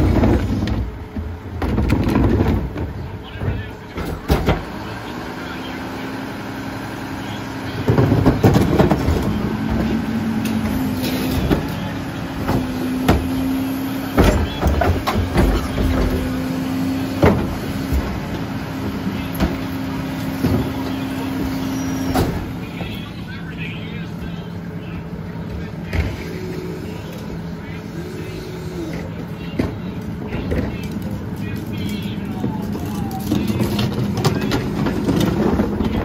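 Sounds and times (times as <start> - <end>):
knocks and bangs of carts: 0.0 - 4.9, 7.7 - 23.1, 28.9 - 36.0
carts rattling into hopper: 0.0 - 5.2, 6.8 - 23.5, 28.9 - 36.0
garbage truck engine hum: 0.0 - 36.0.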